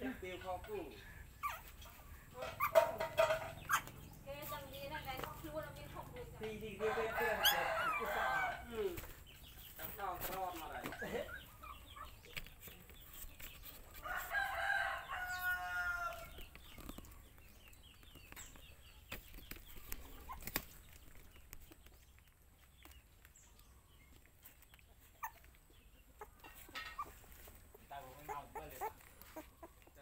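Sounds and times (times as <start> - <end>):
rooster crowing: 6.8 - 8.7, 14.1 - 16.3.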